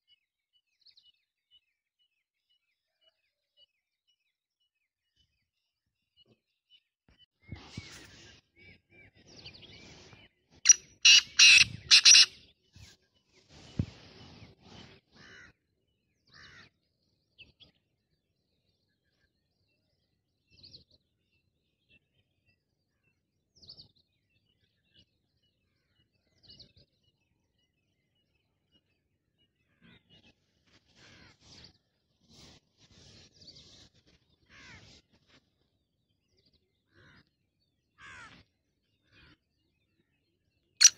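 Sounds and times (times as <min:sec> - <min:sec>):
francolin calling: 0:10.7 - 0:12.4.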